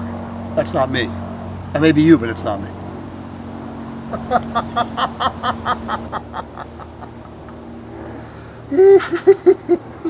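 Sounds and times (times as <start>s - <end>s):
evil laughter: 4.1s - 7.6s, 8.7s - 10.0s.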